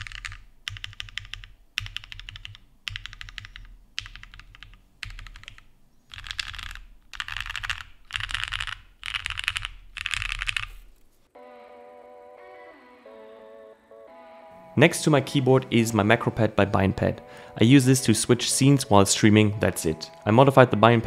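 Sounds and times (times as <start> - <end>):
typing on mechanical keyboard: 0.0 - 10.9
plucked guitar music: 11.4 - 21.0.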